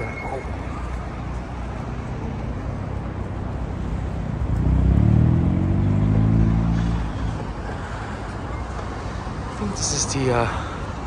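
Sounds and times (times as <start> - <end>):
low hum of city traffic: 0.0 - 11.0
car engine revving: 3.7 - 7.4.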